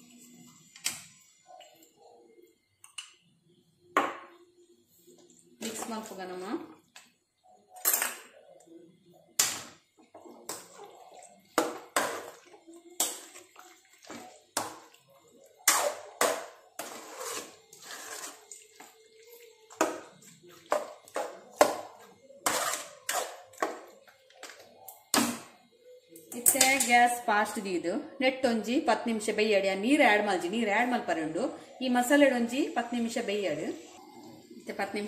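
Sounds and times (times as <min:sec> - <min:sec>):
spoon scraping metal pan: 0:15.6 - 0:18.6, 0:22.4 - 0:23.7.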